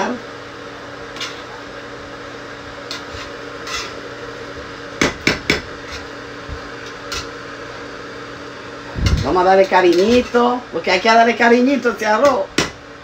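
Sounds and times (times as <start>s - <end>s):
spoon scraping rice in metal pan: 2.9s - 4.0s.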